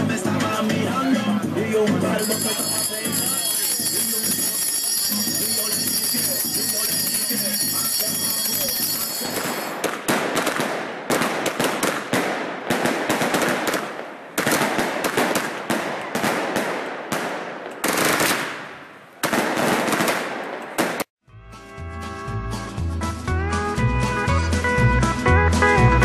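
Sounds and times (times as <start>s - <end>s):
firecrackers crackling: 2.2s - 21.1s.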